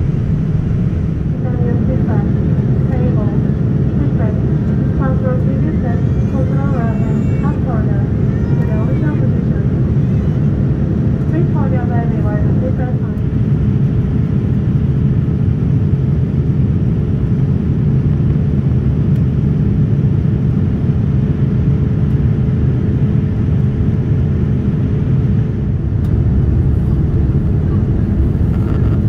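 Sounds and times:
airliner cabin rumble: 0.0 - 29.0.

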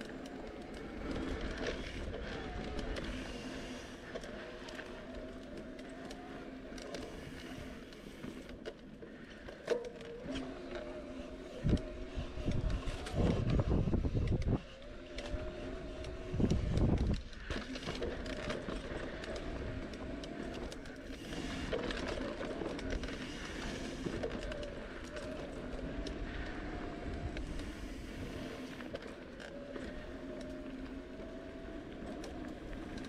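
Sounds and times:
bike tyres on dirt trail: 0.0 - 33.0
wind buffeting microphone: 11.6 - 17.4.

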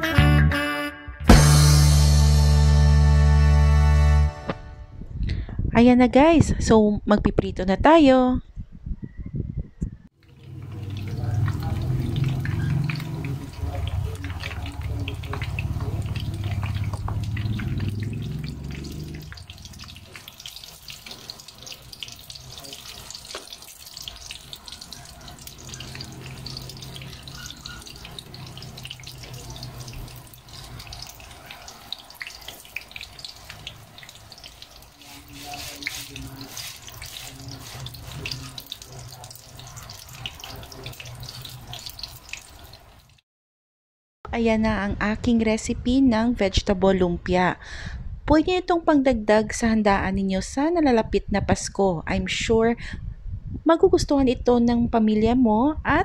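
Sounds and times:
frying in hot oil sizzle: 10.2 - 43.2.

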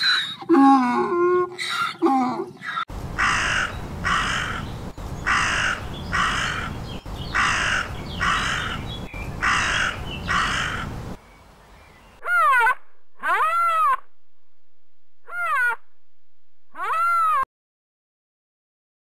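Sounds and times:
crow cawing: 3.2 - 11.0.

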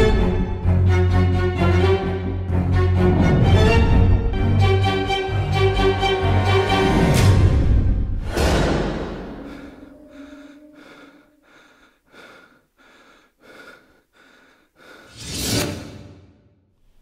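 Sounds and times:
loud hit: 7.2 - 10.0.

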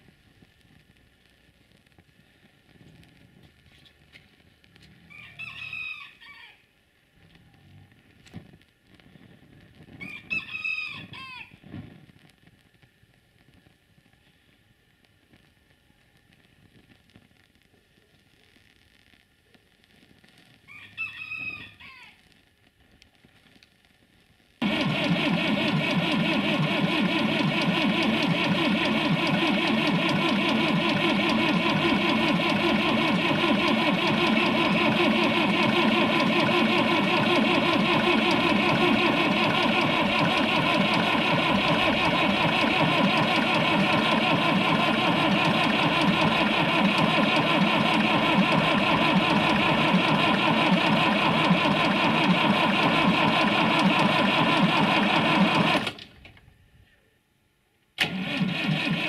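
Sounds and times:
tractor engine cranking: 24.6 - 56.1, 58.0 - 59.0.

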